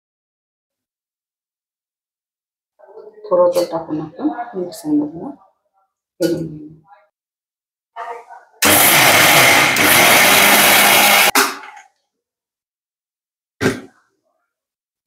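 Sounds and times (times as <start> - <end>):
mixer grinder running: 8.6 - 11.4.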